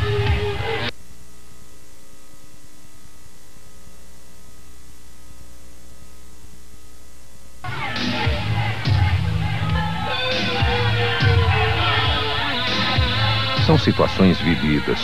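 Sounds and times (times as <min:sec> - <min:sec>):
music: 0:00.0 - 0:00.9, 0:07.6 - 0:15.0
electrical mains hum with hiss: 0:00.0 - 0:07.8, 0:08.5 - 0:15.0.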